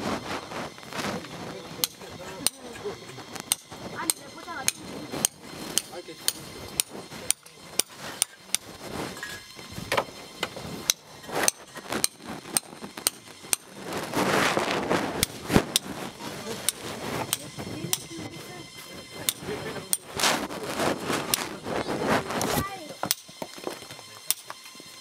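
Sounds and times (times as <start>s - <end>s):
hammer striking stone: 3.5s - 13.7s, 23.0s - 24.6s
rushing noise: 10.6s - 17.8s.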